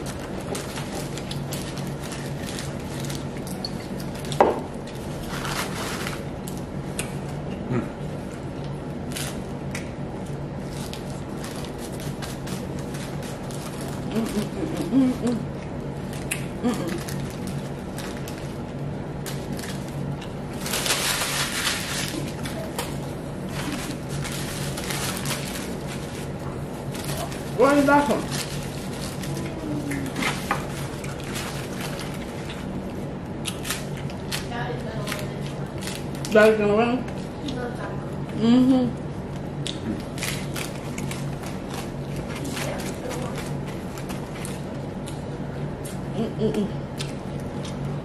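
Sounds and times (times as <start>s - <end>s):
paper wrappers crinkling: 0.0s - 6.6s, 10.6s - 15.4s, 16.0s - 32.8s, 40.0s - 44.8s
crunchy tacos being chewed: 0.0s - 48.0s
steady low hum: 0.0s - 48.0s.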